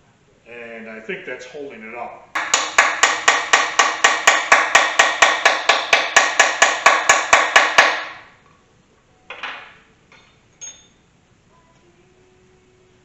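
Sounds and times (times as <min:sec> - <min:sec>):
fast hammer blows on metal: 0:02.4 - 0:08.3
metal clink: 0:09.4 - 0:11.0.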